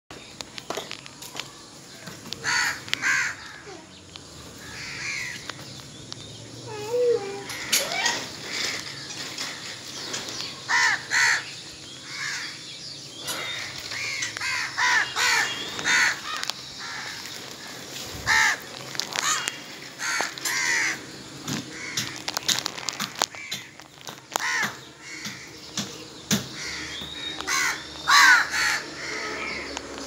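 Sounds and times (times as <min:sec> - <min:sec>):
crows cawing: 0:02.4 - 0:03.8, 0:04.6 - 0:05.6, 0:07.2 - 0:10.0, 0:10.7 - 0:12.6, 0:13.2 - 0:25.6, 0:26.3 - 0:29.8.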